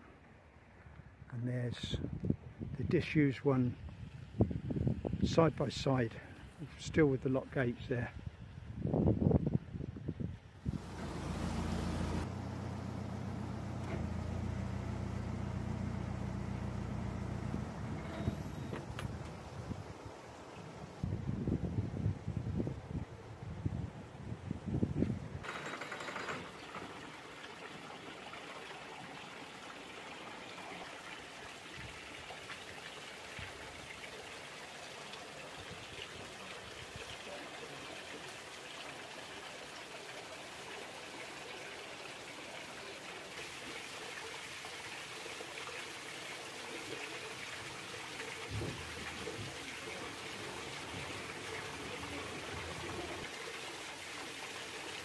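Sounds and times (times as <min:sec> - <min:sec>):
water running and trickling: 0:10.7 - 0:19.9, 0:26.4 - 0:55.0.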